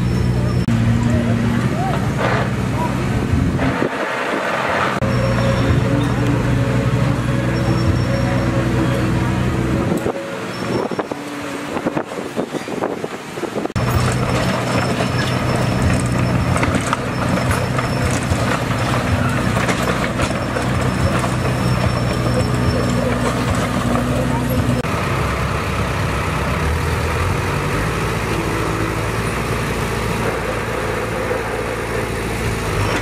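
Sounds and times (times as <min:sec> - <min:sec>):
machinery clattering and knocking: 0:00.0 - 0:24.9
heavy diesel engine running: 0:00.0 - 0:33.0.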